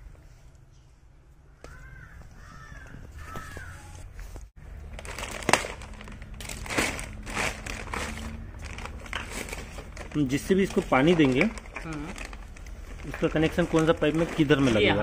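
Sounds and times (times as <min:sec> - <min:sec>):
bird calling: 0:01.5 - 0:04.2
plastic bag crinkling: 0:04.8 - 0:15.0.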